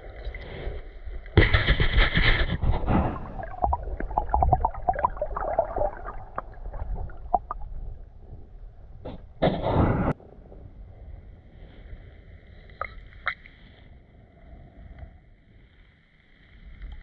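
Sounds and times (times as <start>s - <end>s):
water gurgling and splashing: 0.0s - 9.4s.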